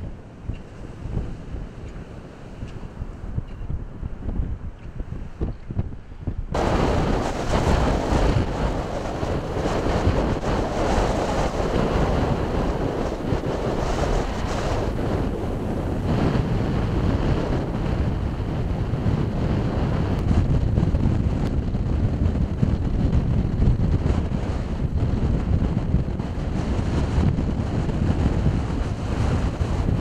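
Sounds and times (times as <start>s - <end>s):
strong wind buffeting microphone: 0.0s - 30.0s
surf breaking on shore: 6.6s - 30.0s.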